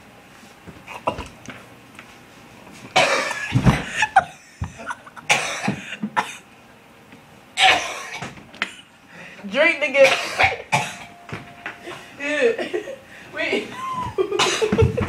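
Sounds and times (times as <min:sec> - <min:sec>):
person coughing: 0:03.0 - 0:04.2, 0:04.8 - 0:06.4, 0:07.6 - 0:08.3, 0:10.0 - 0:11.2, 0:13.8 - 0:15.0.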